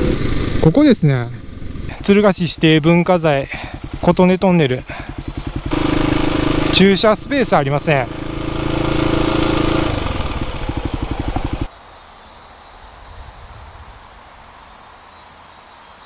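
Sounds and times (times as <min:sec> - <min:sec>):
motorcycle engine idling: 0:00.0 - 0:11.7
outdoor background noise: 0:00.0 - 0:16.0.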